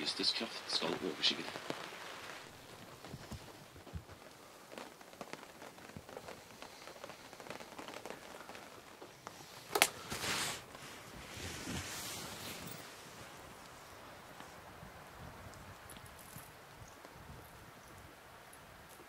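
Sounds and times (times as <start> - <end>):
hiss: 0.0 - 14.7
light rain on tent canvas: 0.0 - 19.0
rustle: 0.0 - 19.0
small ticks: 3.0 - 10.0.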